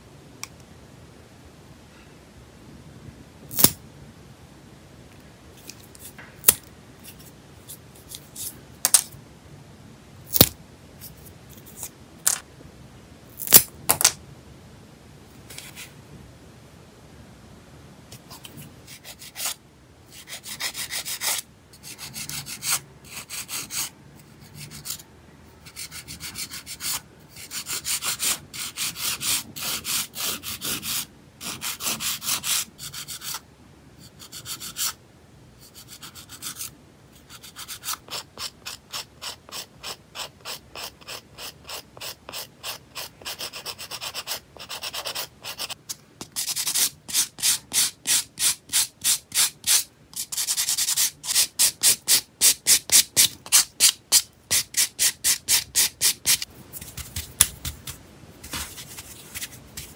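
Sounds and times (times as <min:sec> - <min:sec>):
nail file rasping: 0:46.3 - 0:58.0
sanding block buffing nails: 0:46.4 - 0:57.8.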